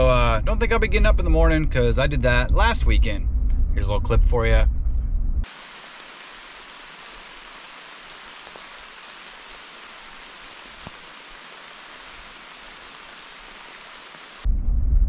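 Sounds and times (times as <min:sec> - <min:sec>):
rain falling through woodland: 0:05.4 - 0:14.5.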